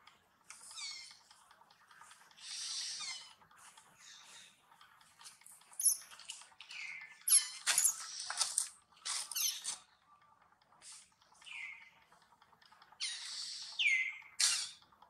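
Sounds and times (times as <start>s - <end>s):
monkeys squealing: 2.4s - 3.4s, 13.0s - 14.8s.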